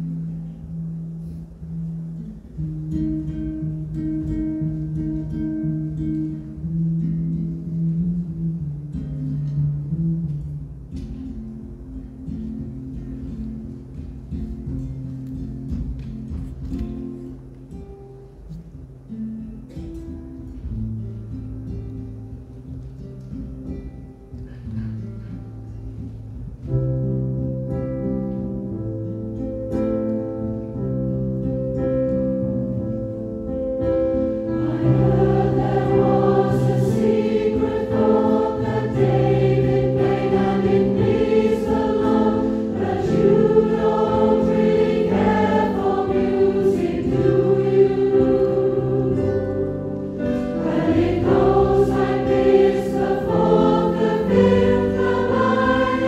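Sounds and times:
mixed choir singing: 34.3 - 56.0.

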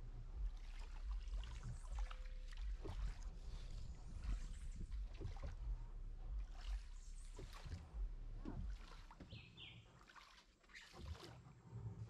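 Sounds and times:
low rumble: 0.0 - 9.3
oars splashing through water: 0.0 - 12.0
oar strokes knocking: 0.4 - 12.0.

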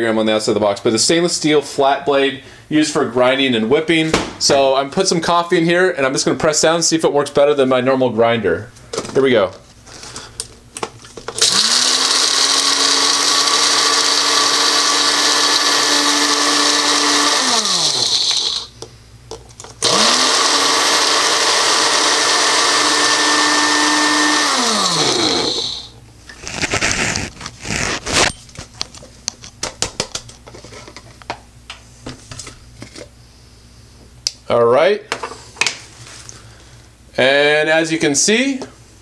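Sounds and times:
blender motor whining: 11.4 - 18.7, 19.8 - 28.0.

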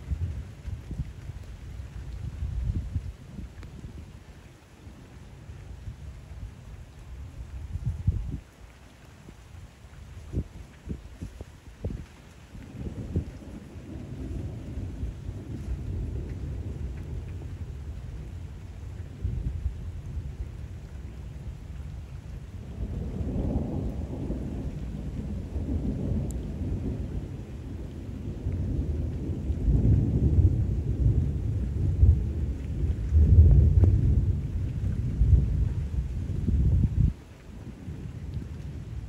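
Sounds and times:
rain falling on water: 0.0 - 39.0
rolling thunder: 10.4 - 21.1, 22.3 - 39.0.

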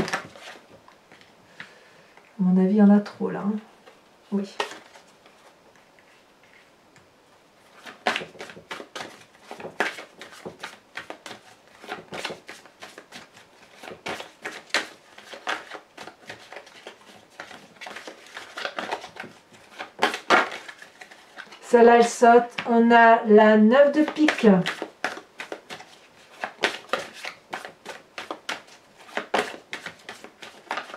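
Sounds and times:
cards being shuffled: 0.0 - 1.7, 3.8 - 6.7, 7.7 - 21.6, 23.9 - 30.9.

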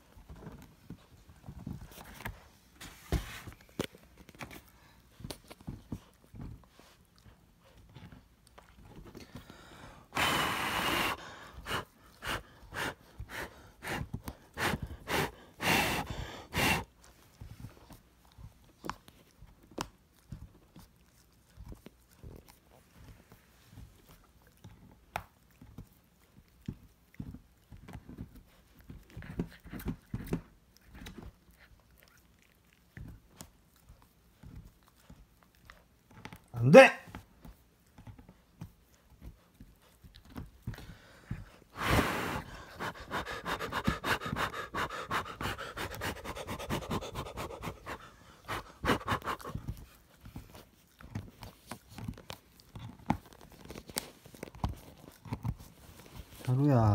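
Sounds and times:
puppy chewing: 0.0 - 9.9, 11.2 - 56.9.

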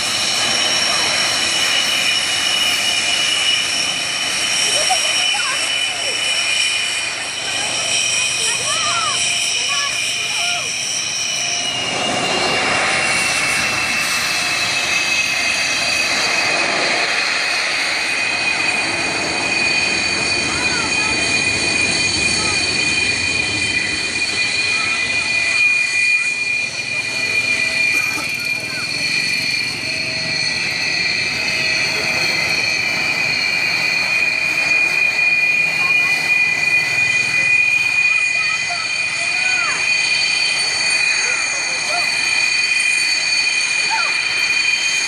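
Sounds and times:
fighter jet engine roar: 0.0 - 45.0.

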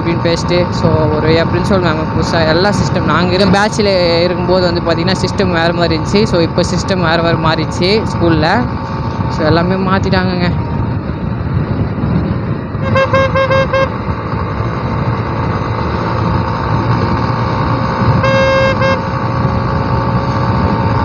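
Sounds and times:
motorcycle engine on highway: 0.0 - 21.0
vehicle horn honking: 12.8 - 14.0, 18.1 - 19.1.

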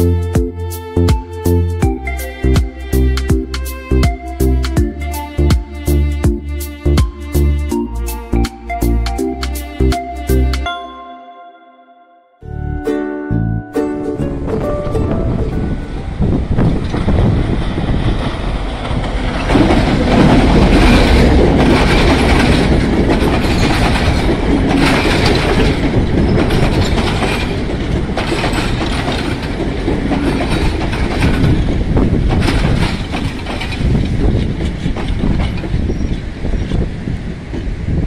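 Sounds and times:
train wheels clattering: 16.6 - 36.8.

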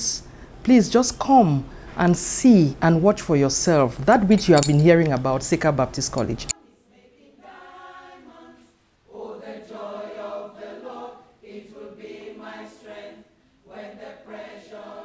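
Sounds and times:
choir singing: 6.6 - 15.0.

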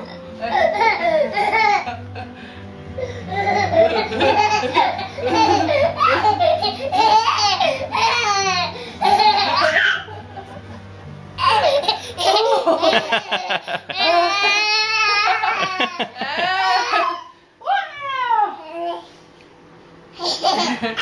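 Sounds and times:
toddler laughing: 0.4 - 2.0, 3.0 - 10.5, 11.4 - 17.3, 20.2 - 21.0.

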